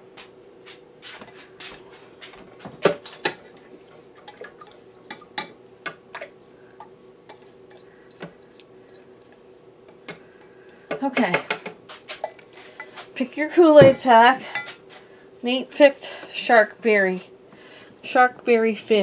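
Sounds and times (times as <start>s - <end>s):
faint steady hum: 0.0s - 19.0s
kitchenware clinking and tapping: 2.8s - 3.6s, 4.2s - 6.3s, 13.8s - 14.8s.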